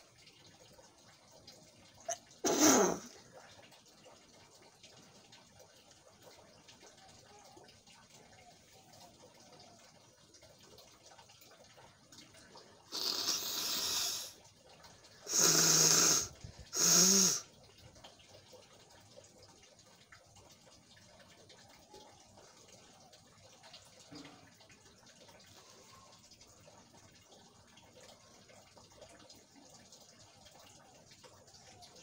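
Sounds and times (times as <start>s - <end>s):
person blowing nose: 2.4s - 3.1s, 12.9s - 14.3s, 15.3s - 17.4s.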